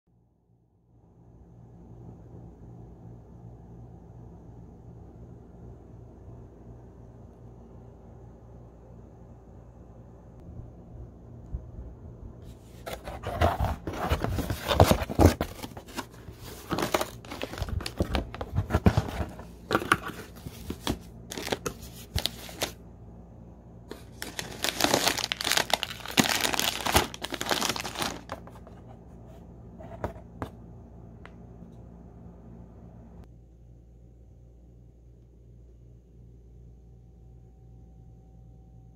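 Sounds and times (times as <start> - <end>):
cardboard box tearing open: 12.9 - 19.4, 24.2 - 28.4
plastic wrappers crinkling: 12.9 - 22.8, 23.9 - 28.7.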